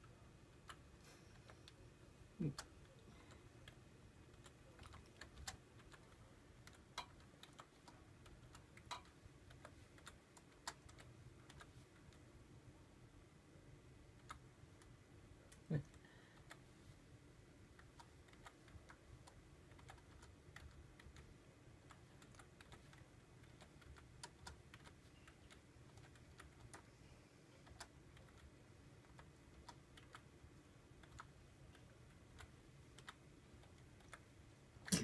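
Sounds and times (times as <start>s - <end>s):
computer keyboard keystrokes: 3.6s - 12.2s, 17.7s - 26.9s, 27.6s - 30.3s, 31.0s - 34.2s.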